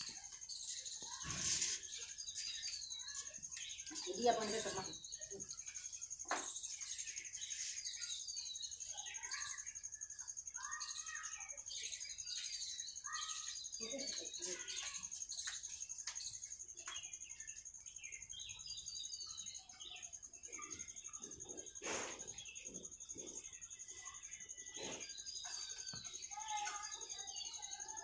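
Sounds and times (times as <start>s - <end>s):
small birds chirping: 0.0s - 28.0s
high-pitched hiss: 21.5s - 22.5s.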